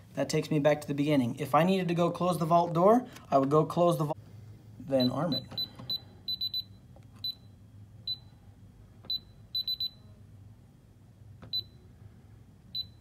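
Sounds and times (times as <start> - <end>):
alarm keypad beeps: 5.0 - 8.4, 9.1 - 10.2, 11.5 - 11.8, 12.7 - 13.0.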